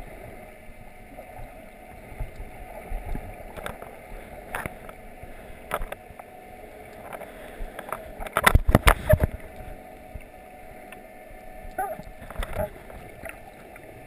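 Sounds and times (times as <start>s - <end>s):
steady hum: 0.0s - 14.0s.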